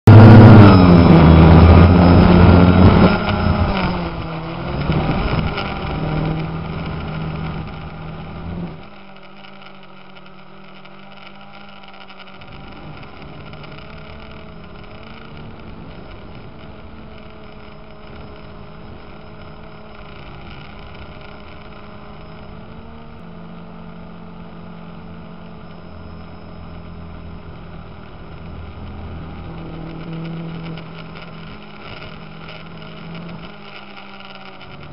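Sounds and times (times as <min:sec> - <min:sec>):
aircraft motor drone: 0:00.0 - 0:34.9.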